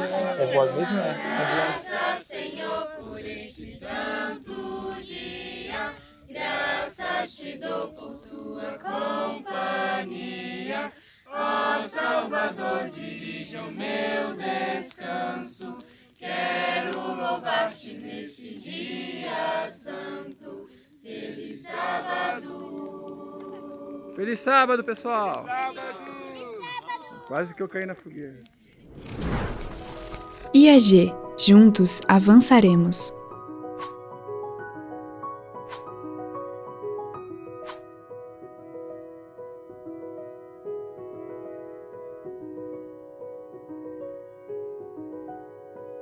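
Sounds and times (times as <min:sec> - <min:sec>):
group singing a cappella: 0:00.0 - 0:24.9.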